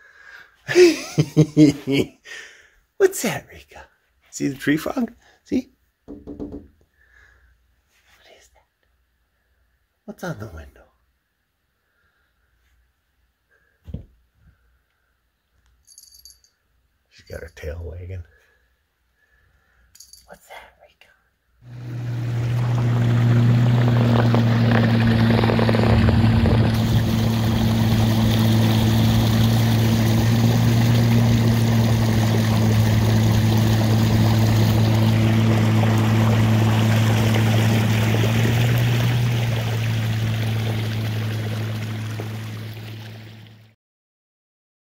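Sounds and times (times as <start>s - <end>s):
low motor hum: 21.6s - 43.8s.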